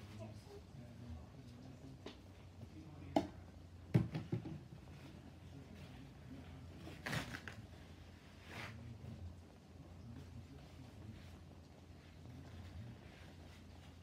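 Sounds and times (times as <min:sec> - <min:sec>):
household items knocking: 0:03.1 - 0:04.8.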